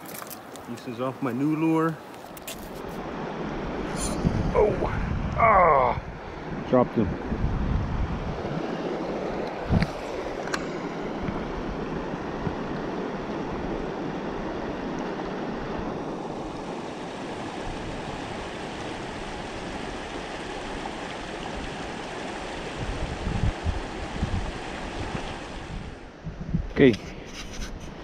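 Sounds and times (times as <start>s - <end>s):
river running over rocks: 8.4s - 26.0s.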